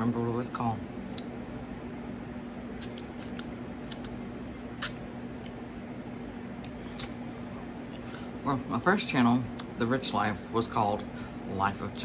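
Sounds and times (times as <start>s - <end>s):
person chewing: 6.6s - 7.2s.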